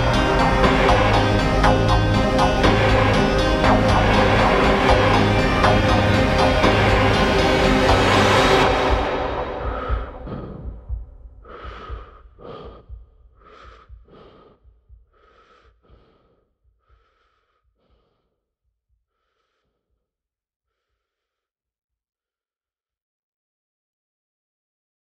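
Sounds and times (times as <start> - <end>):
person breathing heavily: 0.0 - 20.0.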